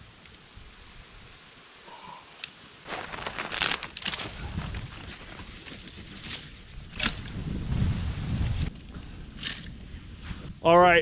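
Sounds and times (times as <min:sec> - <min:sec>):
twigs rustling and snapping: 0:02.4 - 0:07.4, 0:08.4 - 0:09.8.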